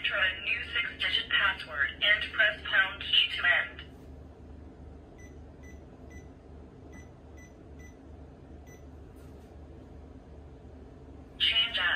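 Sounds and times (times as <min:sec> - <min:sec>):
keypad beeps: 0:05.2 - 0:06.3, 0:06.9 - 0:08.0, 0:08.6 - 0:08.9.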